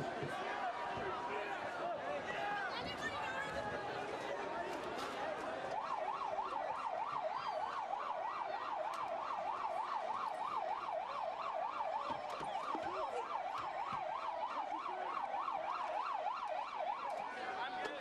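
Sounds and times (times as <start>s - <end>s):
street noise: 0.0s - 18.0s
siren yelping: 5.8s - 17.9s.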